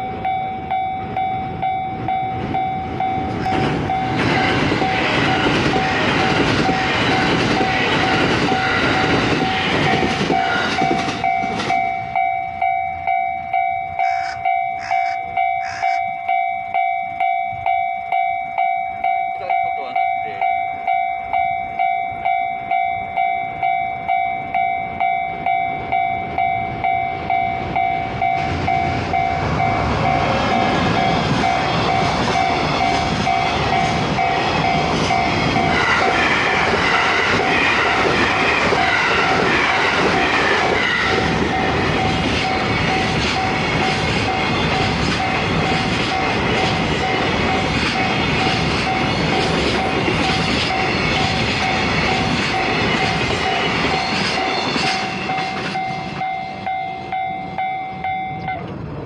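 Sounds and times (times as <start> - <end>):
level-crossing alarm bell ringing: 0.0 - 58.7
train wheel and rail noise: 0.0 - 59.0.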